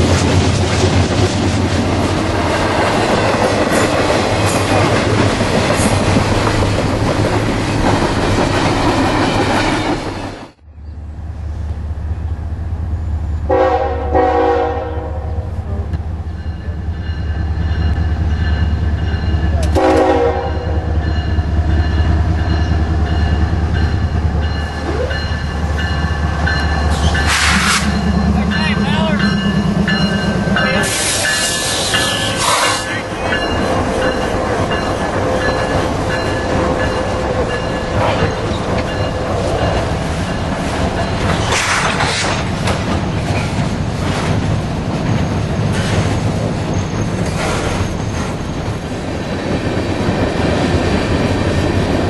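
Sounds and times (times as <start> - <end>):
diesel locomotive rumbling: 0.0 - 52.0
freight train wheels on rails: 0.0 - 52.0
train horn blasts: 13.5 - 15.5, 19.6 - 21.0.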